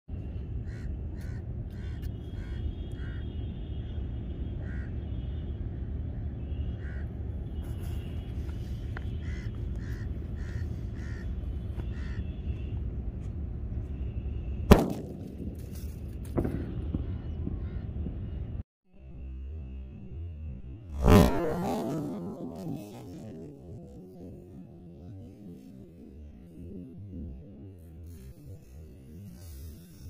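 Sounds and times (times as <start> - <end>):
crows cawing: 0.6 - 3.3, 4.6 - 4.9, 6.8 - 7.1, 9.2 - 12.3
firecracker bang: 14.7 - 17.6.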